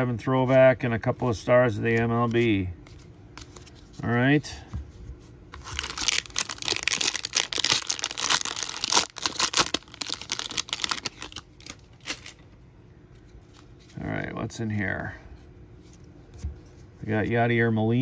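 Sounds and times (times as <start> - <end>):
plastic wrapper crinkling: 5.6 - 12.4.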